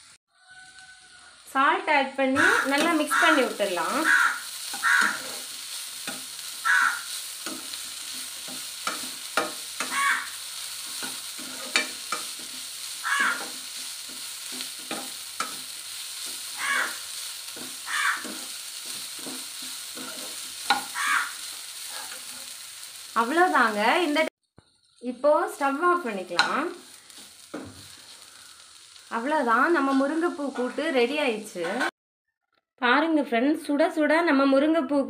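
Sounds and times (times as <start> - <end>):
food sizzling: 0.0 - 32.0
steel spoon scraping a pan: 2.4 - 23.4, 24.7 - 25.1, 26.2 - 29.0.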